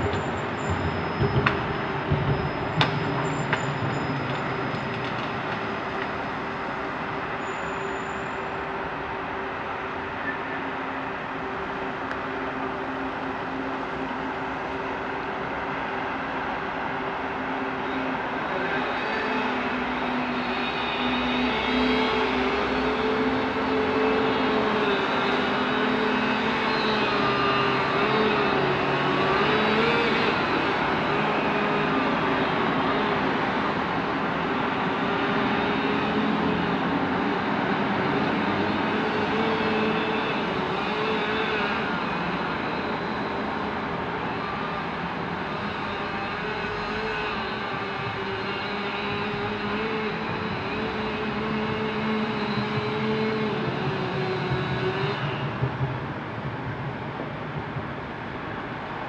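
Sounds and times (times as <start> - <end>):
heavy machinery rumbling: 0.0 - 16.3.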